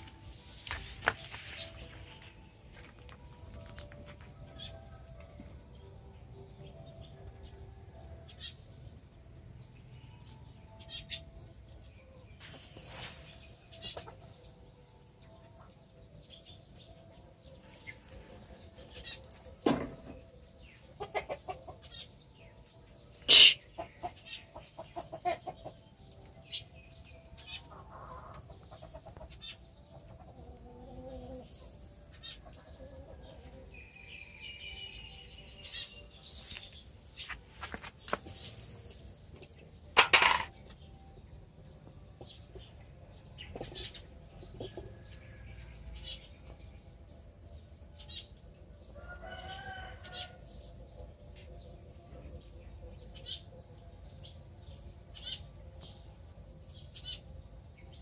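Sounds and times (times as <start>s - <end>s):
kittens scuffing on concrete: 0.0s - 4.4s, 36.2s - 39.2s.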